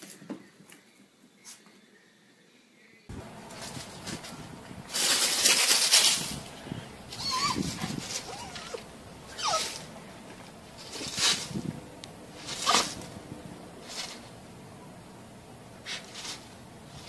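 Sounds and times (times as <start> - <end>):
cat hissing: 6.1 - 10.0, 12.4 - 13.2, 15.8 - 17.0
cat yowling: 7.1 - 9.9.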